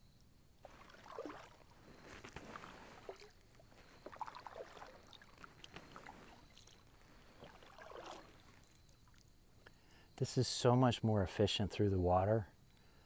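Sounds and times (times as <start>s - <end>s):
paddle splashing in water: 0.6s - 9.2s
water dripping off paddle: 0.6s - 9.8s.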